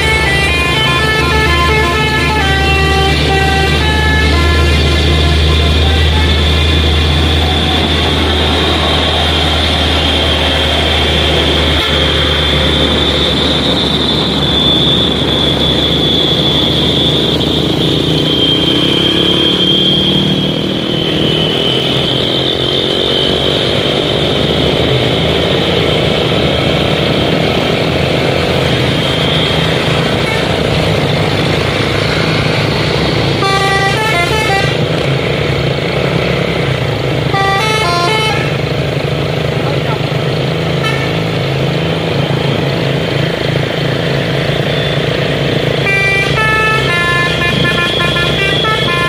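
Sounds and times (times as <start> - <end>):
multi-note air horn: 0.0 - 6.6, 11.7 - 12.2, 33.4 - 34.8, 37.3 - 38.6, 40.8 - 41.3, 45.8 - 49.0
truck diesel engines under load: 0.0 - 49.0.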